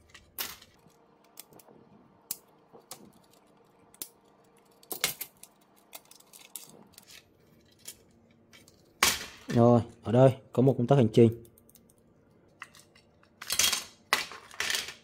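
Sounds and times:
plastic parts and tweezers clicking: 2.3s - 8.0s.

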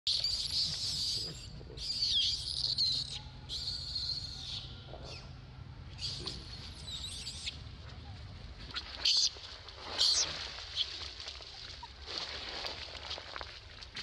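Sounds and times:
baby monkey screaming: 0.2s - 5.2s.

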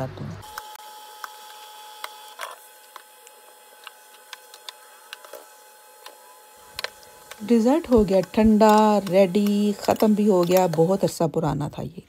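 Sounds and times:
ladle tapping plastic cups: 6.8s - 11.0s.

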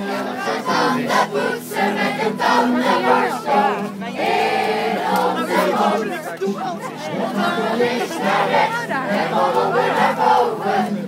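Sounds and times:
children singing together: 0.0s - 5.7s.

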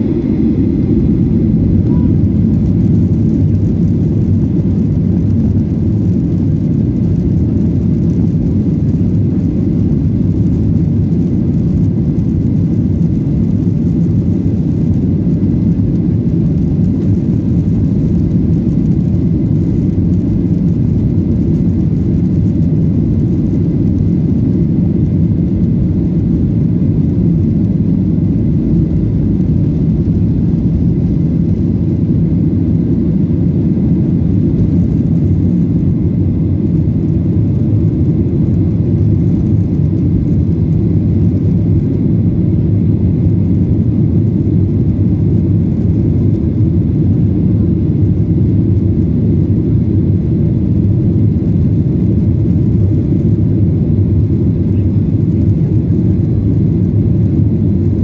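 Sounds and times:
jet engines at takeoff thrust: 0.0s - 58.0s
faint high tone: 1.8s - 2.2s.

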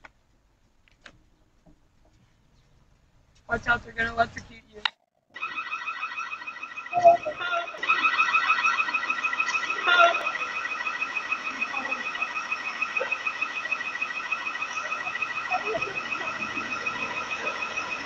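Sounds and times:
security alarm pulsing beep: 5.4s - 18.0s.

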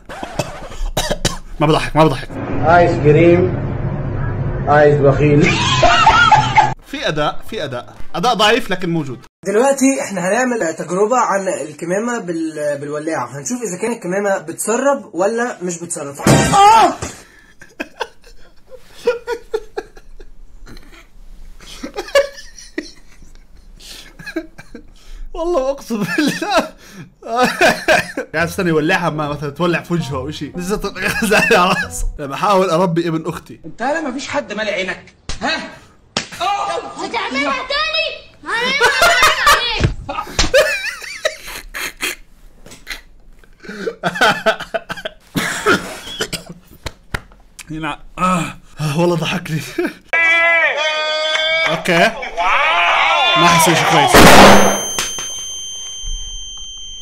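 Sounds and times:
man laughing under his breath: 17.2s - 21.0s, 21.6s - 25.1s, 40.1s - 42.2s, 42.8s - 46.3s
man chuckling: 31.0s - 32.1s, 40.1s - 42.2s.

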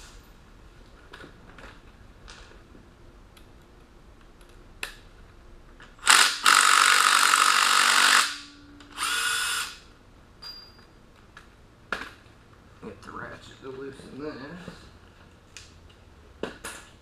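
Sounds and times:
handheld power tool running: 6.0s - 9.8s.

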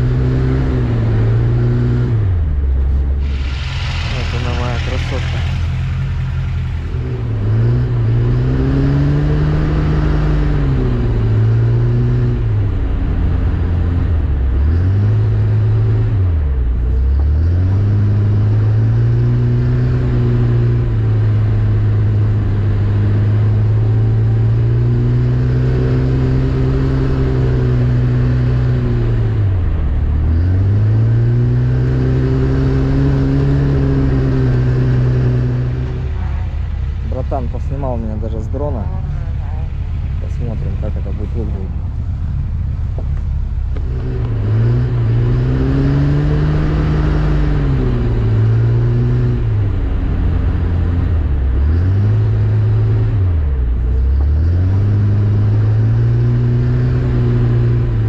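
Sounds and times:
car engine revving inside cabin: 0.0s - 58.0s.

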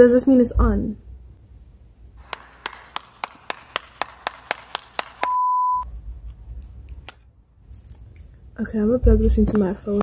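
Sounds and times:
person clapping: 2.2s - 5.4s
pure beep: 5.3s - 5.9s.

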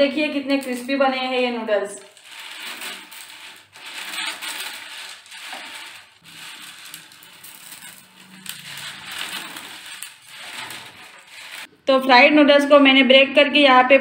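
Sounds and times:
fried noodles crackling and snapping: 2.2s - 11.7s.

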